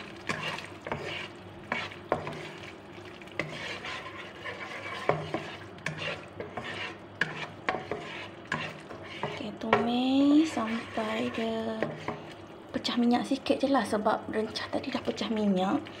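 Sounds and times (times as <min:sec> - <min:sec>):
spatula scraping and tapping pan: 0:00.0 - 0:02.7, 0:03.4 - 0:12.4
chilli paste sizzling in oil: 0:00.0 - 0:16.0.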